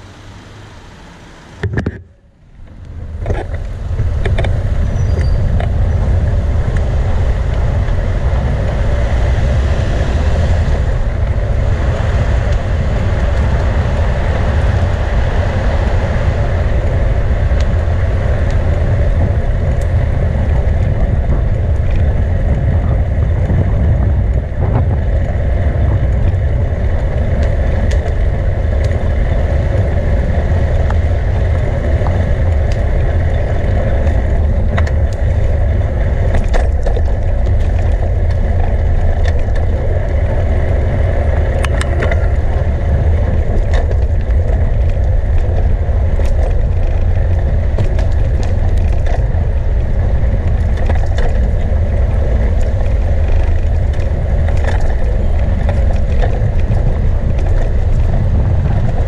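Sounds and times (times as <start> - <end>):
tyre and road noise: 0.0 - 59.0
wind rumble on microphone: 1.6 - 59.0
small clicks and rattles: 30.7 - 59.0.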